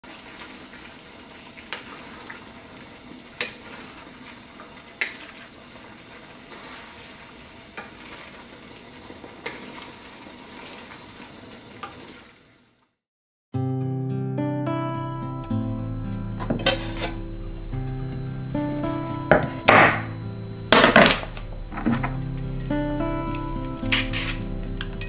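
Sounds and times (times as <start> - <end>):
food sizzling in a pan: 0.0 - 12.9, 15.0 - 25.0
wooden spatula knocking on pan: 19.3 - 20.1.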